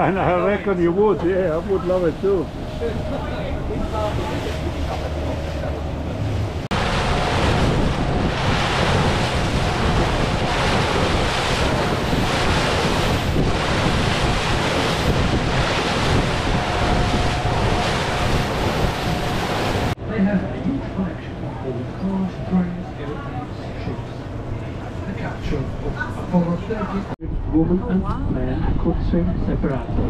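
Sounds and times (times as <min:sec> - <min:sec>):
rushing water: 0:00.0 - 0:20.0
wind buffeting the microphone: 0:00.0 - 0:20.0, 0:27.2 - 0:30.0.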